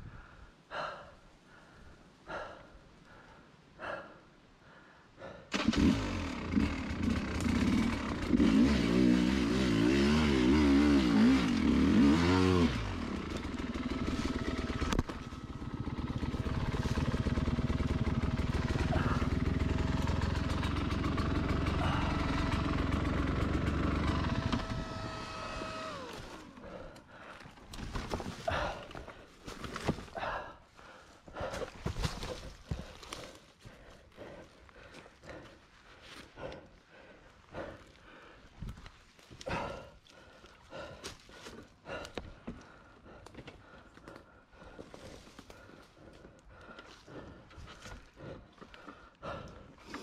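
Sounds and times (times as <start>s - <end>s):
dirt bike engine revving and idling: 5.5s - 27.0s.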